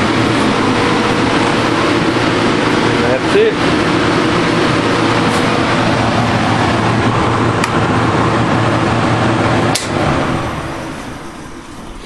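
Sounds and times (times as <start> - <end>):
cooling fan rushing: 0.0 - 12.0
welder transformer hum: 0.0 - 12.0
sharp switch click: 9.7 - 10.0.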